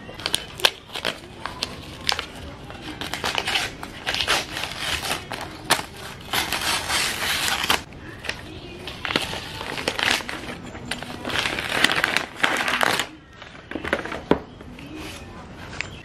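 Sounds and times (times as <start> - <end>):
wrapping paper tearing: 0.1 - 14.3.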